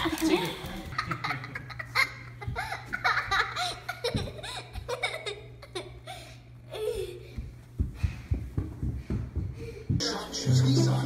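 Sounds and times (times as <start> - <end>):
girl laughing and giggling: 0.0 - 7.4.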